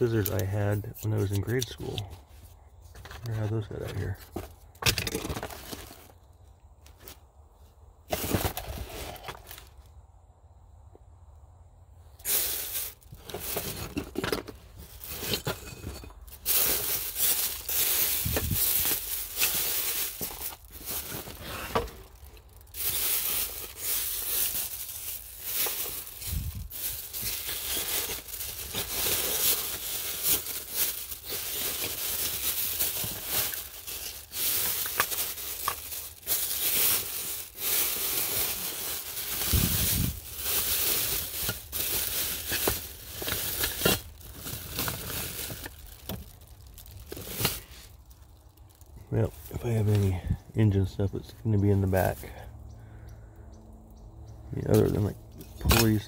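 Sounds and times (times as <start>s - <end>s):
plastic bags crinkling: 0.0s - 0.6s, 3.0s - 6.2s, 8.1s - 9.8s, 12.2s - 50.2s.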